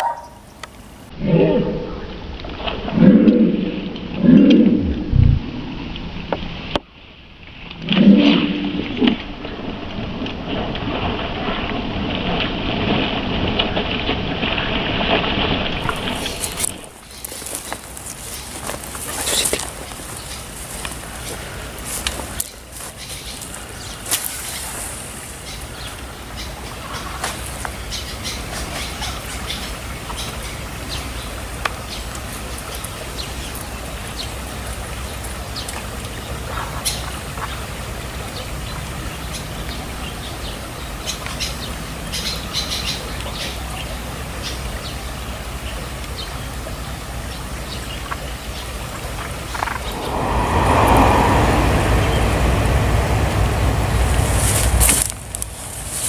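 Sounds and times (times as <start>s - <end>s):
broad loud noise: 0.0s - 6.3s, 49.6s - 56.0s
low outdoor rumble: 0.0s - 41.0s, 49.4s - 56.0s
birds chirping: 15.8s - 30.3s.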